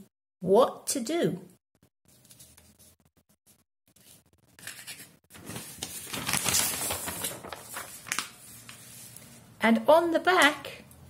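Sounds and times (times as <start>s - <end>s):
paper rustling and crinkling: 2.1s - 3.1s, 3.9s - 9.4s.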